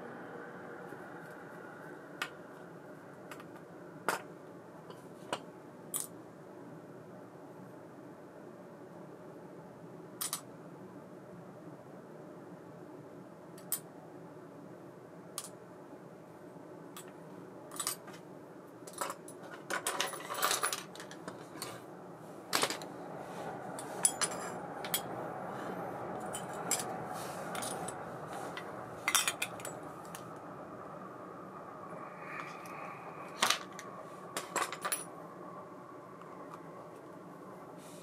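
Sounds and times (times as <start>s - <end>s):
small metal parts clinking: 18.9s - 21.8s, 24.0s - 25.1s, 26.2s - 26.9s, 27.5s - 28.0s, 29.0s - 30.2s, 34.4s - 35.1s.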